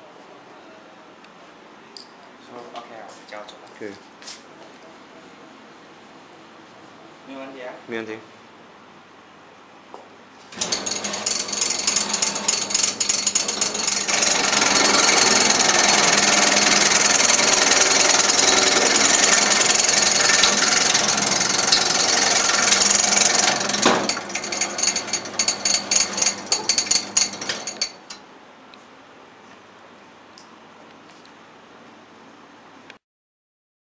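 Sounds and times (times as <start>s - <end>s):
motor hum: 10.5s - 28.0s
cutting machine clattering: 10.5s - 28.2s.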